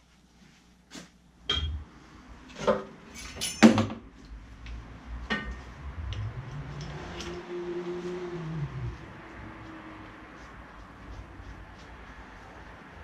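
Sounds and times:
metallic clinks and knocks: 3.1s - 4.0s.

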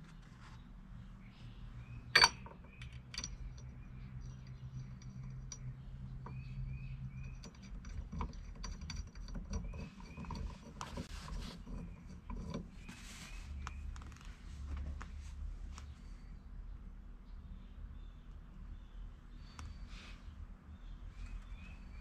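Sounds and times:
faint low hum: 0.0s - 22.0s
metal screws clicking and tinkling: 2.2s - 12.8s.

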